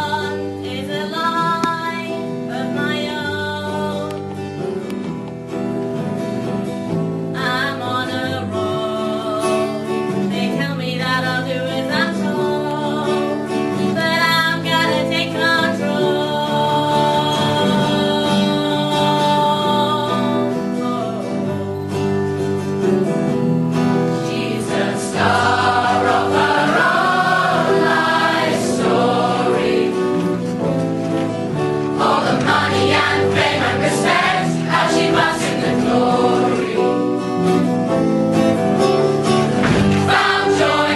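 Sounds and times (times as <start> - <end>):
instrumental accompaniment: 21.5 - 40.9
choir singing: 24.1 - 30.6, 31.8 - 37.4, 40.0 - 40.9.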